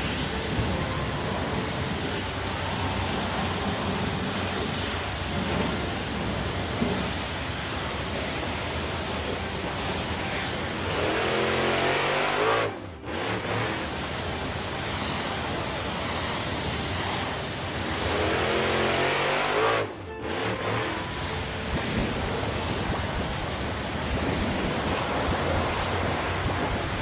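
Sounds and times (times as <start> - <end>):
cartoon car wash hiss: 0.0 - 27.0
rising whine: 0.0 - 27.0.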